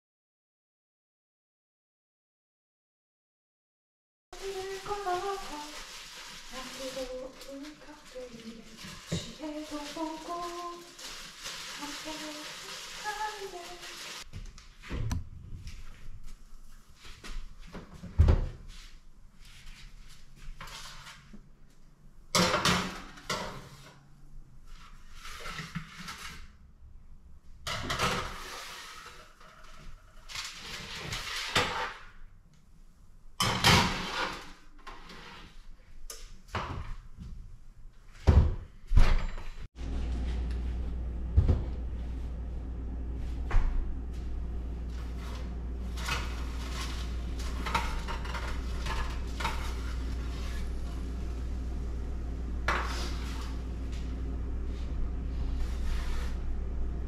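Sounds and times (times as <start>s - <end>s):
steady low hum: 39.8s - 57.0s.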